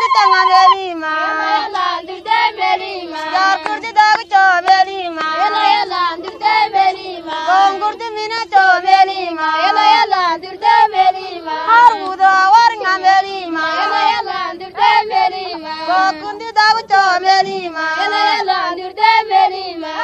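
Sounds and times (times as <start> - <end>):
held drone note: 0.0 - 0.8
high voice singing: 0.0 - 1.1.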